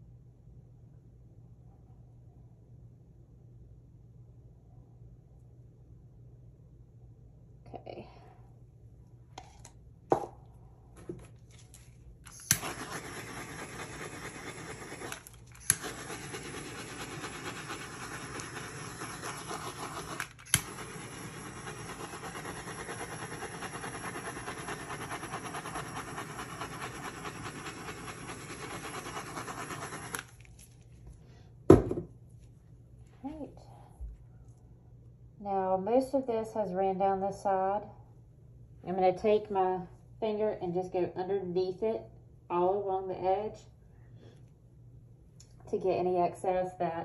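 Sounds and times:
torch igniter clicking: 0:12.2 - 0:17.1, 0:17.7 - 0:24.1
torch flame hissing: 0:12.3 - 0:30.4
loud knock: 0:31.7 - 0:32.1.

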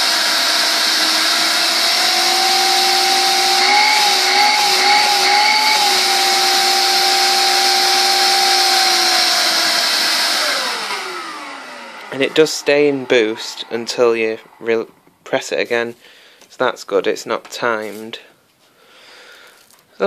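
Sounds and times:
vacuum cleaner running: 0:00.0 - 0:15.7.

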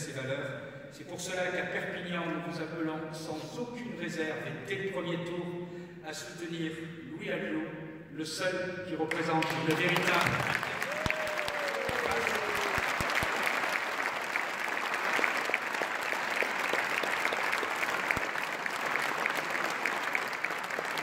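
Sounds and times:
audience applauding: 0:09.1 - 0:21.0.

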